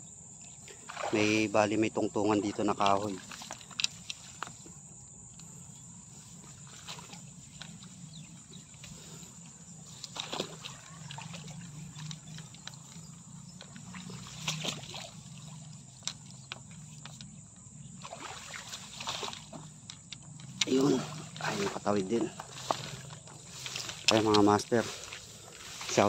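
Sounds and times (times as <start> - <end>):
high insect buzz: 0.0 - 26.0
footsteps through tall grass: 21.0 - 26.0.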